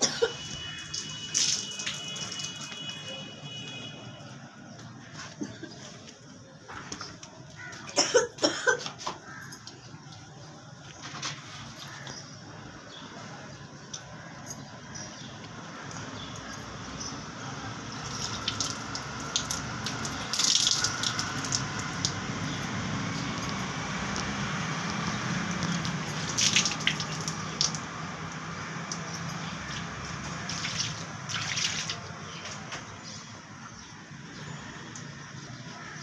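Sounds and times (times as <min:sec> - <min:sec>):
water splashing on face: 0:00.3 - 0:03.1, 0:17.9 - 0:22.5, 0:23.1 - 0:32.1
tap water running: 0:18.0 - 0:32.0.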